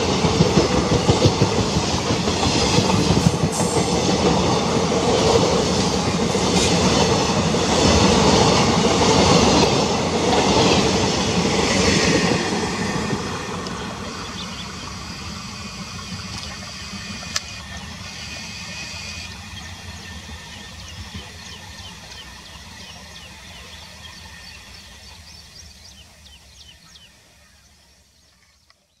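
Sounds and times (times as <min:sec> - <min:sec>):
train wheels clattering over rail joints: 0:00.0 - 0:14.6.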